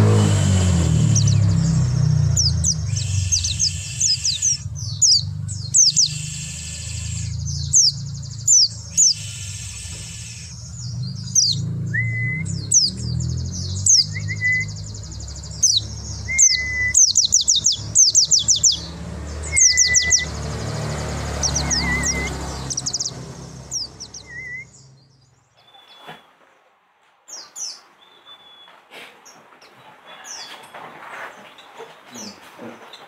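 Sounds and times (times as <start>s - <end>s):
birds chirping and twittering: 0.0s - 26.3s, 27.3s - 33.0s.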